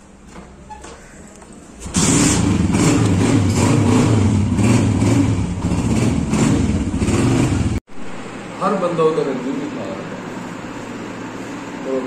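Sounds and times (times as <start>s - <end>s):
motorcycle engine revving: 1.8s - 7.8s.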